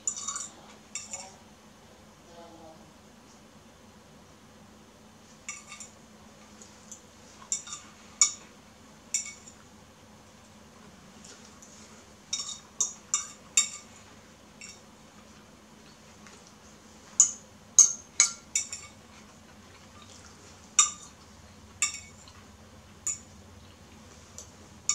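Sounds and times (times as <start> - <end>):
fork clinking on ceramic plate: 0.0 - 1.4, 5.5 - 5.9, 12.3 - 13.9, 14.6 - 14.8, 17.2 - 19.0, 21.8 - 22.3.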